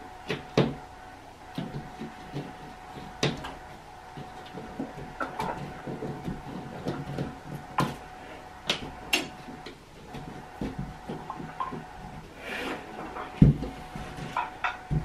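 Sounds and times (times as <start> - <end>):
faint steady hum: 0.0 - 15.0
hand scraping plaster ceiling: 0.0 - 15.0
sharp knocks and clicks: 8.6 - 12.0.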